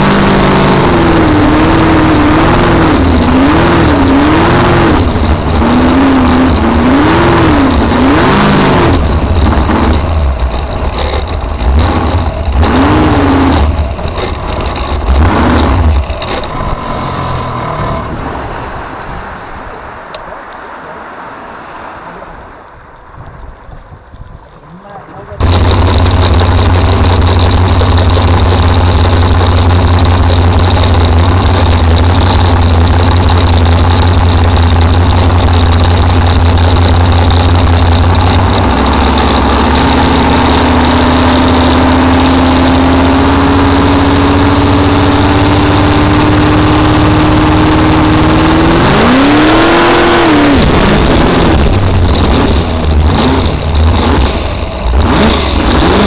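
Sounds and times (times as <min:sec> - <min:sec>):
boat engine running hard: 0:00.0 - 0:19.9, 0:24.7 - 0:56.0
supercharger whine: 0:00.0 - 0:20.7, 0:22.1 - 0:56.0
water noise: 0:00.0 - 0:56.0
wind noise: 0:21.7 - 0:27.5.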